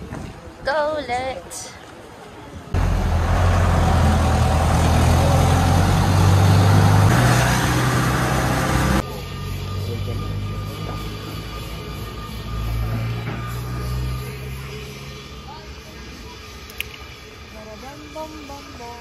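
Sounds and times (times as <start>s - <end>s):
vehicle engine running: 2.8s - 16.2s.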